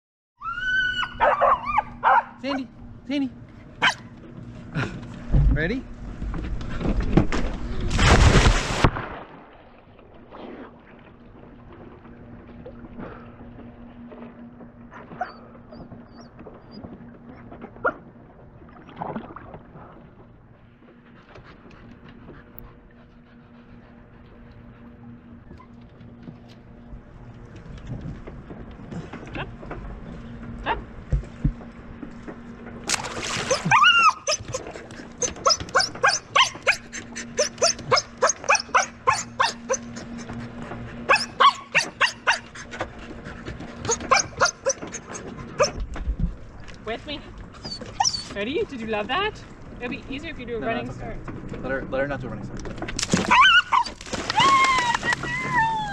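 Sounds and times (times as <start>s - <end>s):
dog whining and yelping: 0.4s - 2.3s, 3.8s - 4.1s, 15.1s - 18.0s, 33.4s - 40.3s, 41.1s - 42.8s, 43.8s - 45.8s, 47.6s - 48.4s, 53.2s - 55.9s
stick splashing into water: 32.8s - 33.8s.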